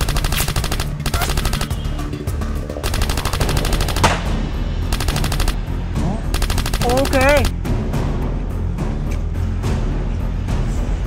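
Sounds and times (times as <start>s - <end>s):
rapid automatic gunfire: 0.0s - 2.0s, 2.8s - 5.6s, 6.3s - 7.5s
background music: 0.0s - 11.0s.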